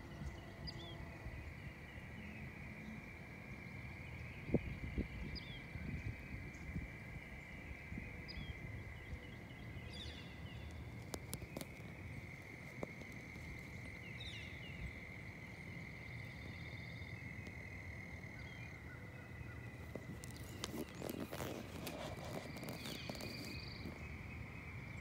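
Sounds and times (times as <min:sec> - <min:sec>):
insects droning: 0:00.0 - 0:25.0
bird chirps: 0:18.3 - 0:25.0.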